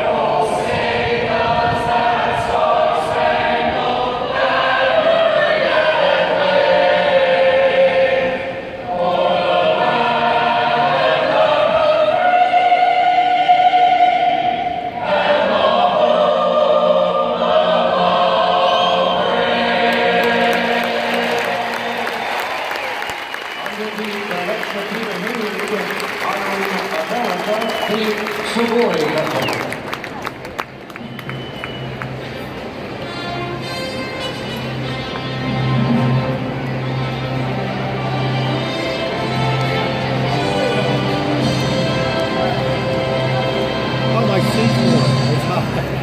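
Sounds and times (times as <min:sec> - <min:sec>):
choir singing: 0:00.0 - 0:22.7, 0:37.4 - 0:45.6.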